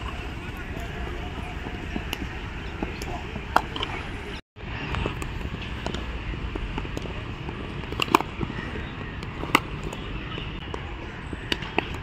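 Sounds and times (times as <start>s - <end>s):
steady background noise: 0.0s - 12.0s
cricket bats striking balls: 1.7s - 4.0s, 5.8s - 12.0s.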